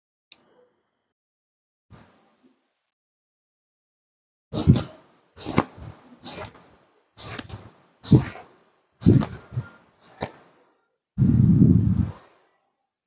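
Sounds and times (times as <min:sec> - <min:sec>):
towel slapping wet hair: 0:04.6 - 0:06.6, 0:07.2 - 0:10.4.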